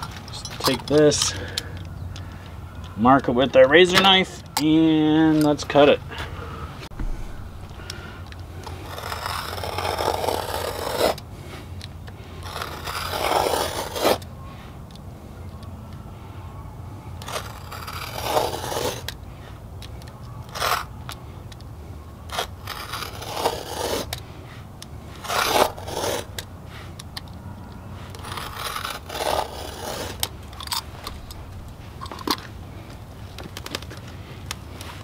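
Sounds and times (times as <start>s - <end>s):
knife scraping through rubber: 8.6s - 11.2s, 12.4s - 14.2s, 17.2s - 19.1s, 22.3s - 24.2s, 25.2s - 26.4s, 28.1s - 30.3s.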